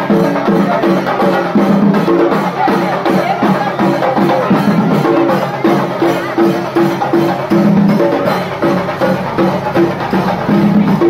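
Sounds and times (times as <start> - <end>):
music with percussion beat: 0.0 - 11.0.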